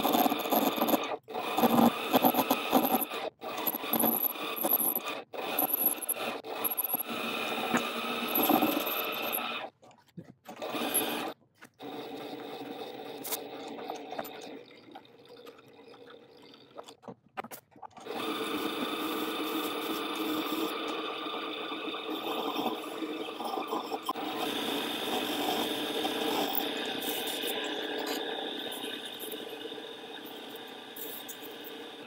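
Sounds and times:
lathe motor whine: 0:00.0 - 0:09.7, 0:10.6 - 0:14.8, 0:18.1 - 0:32.0
tool cutting spinning brass: 0:00.0 - 0:09.8, 0:10.5 - 0:16.7, 0:18.0 - 0:32.0.

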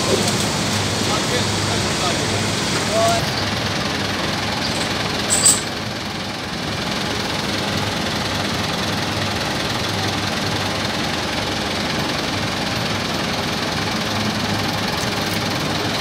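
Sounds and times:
dense machinery din: 0:00.0 - 0:05.8
tractor diesel engine running: 0:00.0 - 0:16.0.

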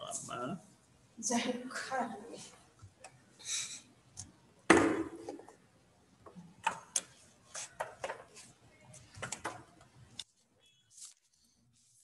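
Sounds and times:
thump: 0:04.7 - 0:05.3.

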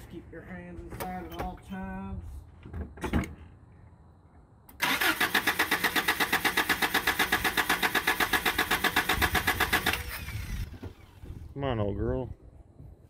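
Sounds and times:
engine cranking without starting: 0:04.7 - 0:11.5.

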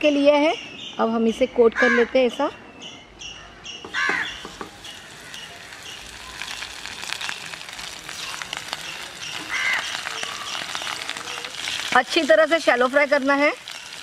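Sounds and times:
bird calling: 0:01.8 - 0:06.6, 0:08.2 - 0:11.8
fish sizzling in hot oil: 0:04.3 - 0:14.0.

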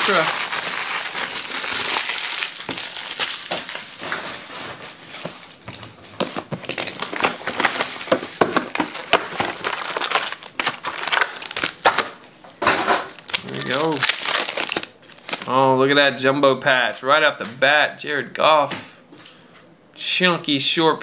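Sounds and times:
plastic and foil packaging crinkling: 0:00.0 - 0:15.7.

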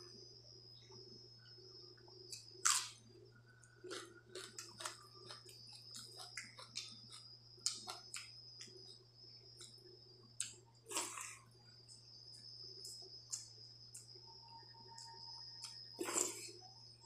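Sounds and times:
crunching bite: 0:02.3 - 0:03.1, 0:03.7 - 0:08.8, 0:10.4 - 0:11.4, 0:15.0 - 0:16.6
chewing: 0:03.7 - 0:09.0, 0:15.6 - 0:16.6.

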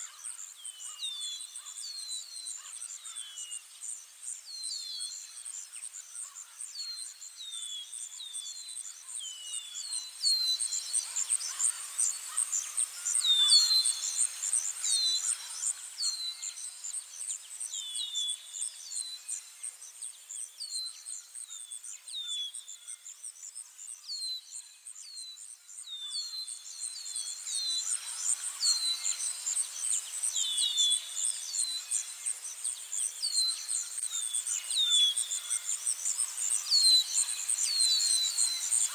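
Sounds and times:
insect trill: 0:08.0 - 0:38.9.

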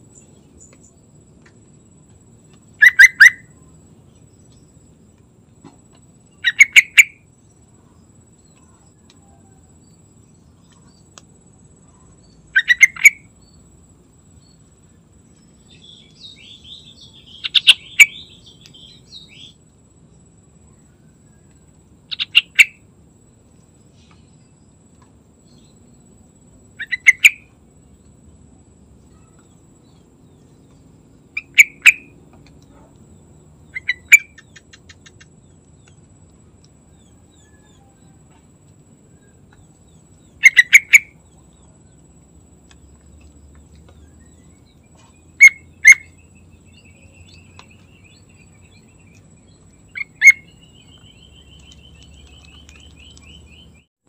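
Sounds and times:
bulbul calling: 0:02.8 - 0:03.6, 0:06.4 - 0:07.2, 0:12.5 - 0:13.3, 0:15.7 - 0:19.6, 0:22.1 - 0:22.8, 0:26.8 - 0:27.5, 0:30.7 - 0:32.8, 0:33.6 - 0:35.6, 0:39.5 - 0:41.7, 0:43.8 - 0:53.9.

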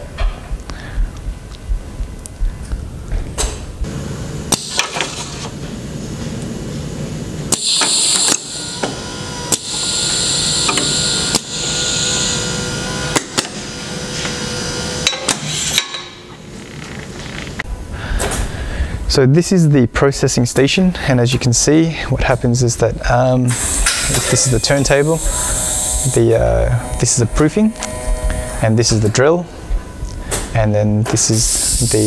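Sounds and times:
conveyor humming: 0:00.0 - 0:32.0
compressed air hissing: 0:03.7 - 0:16.0, 0:23.5 - 0:28.8, 0:31.2 - 0:32.0
pneumatic cylinders clacking: 0:04.5 - 0:06.4, 0:07.5 - 0:17.6, 0:23.5 - 0:26.2, 0:30.3 - 0:32.0.

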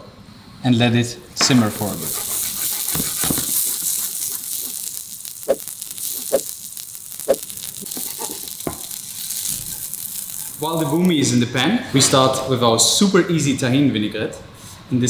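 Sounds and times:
oil popping: 0:01.4 - 0:11.3
food sizzling in hot oil: 0:01.4 - 0:11.4.

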